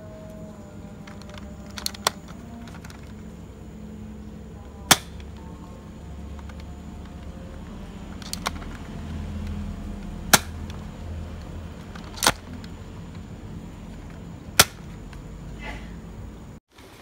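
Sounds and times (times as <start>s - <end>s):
low steady rumble: 0.0s - 16.6s
toy blaster shots snapping: 4.9s - 5.2s, 10.3s - 10.8s, 12.0s - 12.6s, 14.6s - 14.9s.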